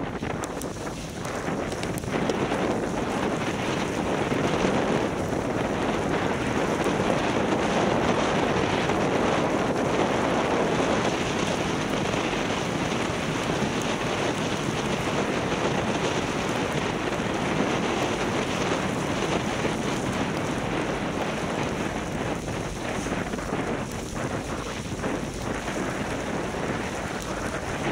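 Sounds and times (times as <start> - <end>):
wind on microphone: 0.0 - 27.9.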